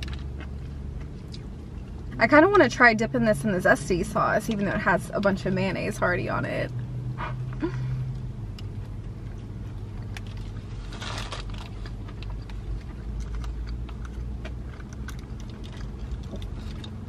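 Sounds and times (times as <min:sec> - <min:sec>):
low car cabin hum: 0:00.0 - 0:17.0
paper and packaging rustling: 0:10.2 - 0:13.9.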